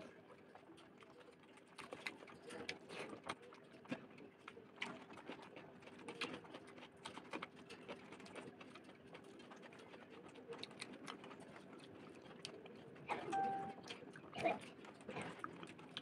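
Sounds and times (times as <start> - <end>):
faint steady hum: 13.1 - 14.0.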